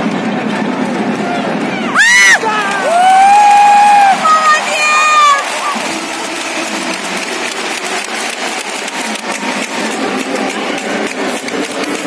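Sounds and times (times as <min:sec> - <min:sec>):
crowd voices: 0:00.0 - 0:12.0
sharp claps and knocks: 0:02.4 - 0:12.0.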